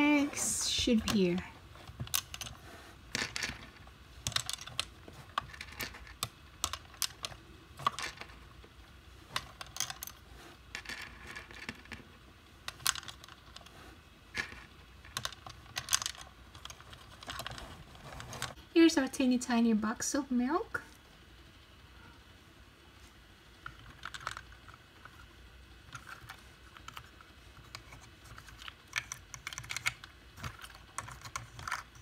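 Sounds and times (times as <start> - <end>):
small plastic pieces clicking: 3.1 - 8.5, 12.7 - 13.7, 14.4 - 17.6, 23.6 - 25.2, 25.9 - 32.0.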